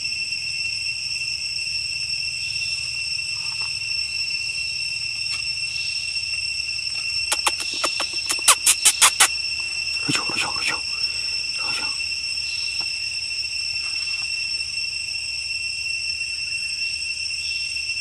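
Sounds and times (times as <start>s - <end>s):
insects droning: 0.0s - 18.0s
rapid sharp clicks: 7.3s - 9.3s.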